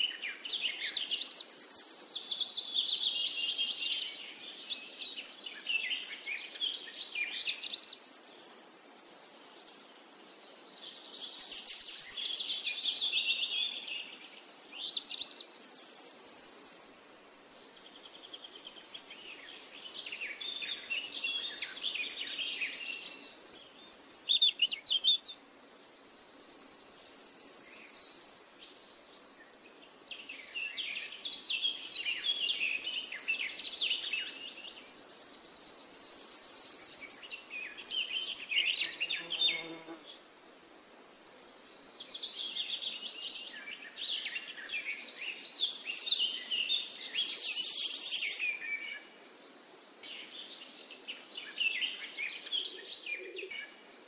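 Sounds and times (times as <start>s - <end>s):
birds singing: 0.0s - 17.0s, 17.7s - 40.2s, 41.0s - 54.0s
high insect buzz: 38.7s - 40.2s.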